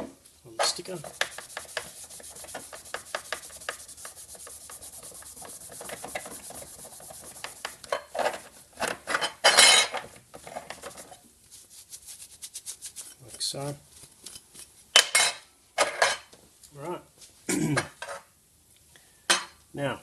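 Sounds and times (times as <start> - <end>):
cloth rag rubbing metal plate: 0.6 - 8.8, 10.4 - 14.1.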